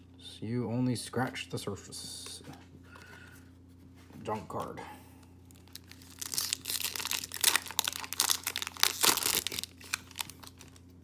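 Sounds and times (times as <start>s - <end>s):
plastic wrapper crinkling: 5.4s - 11.0s.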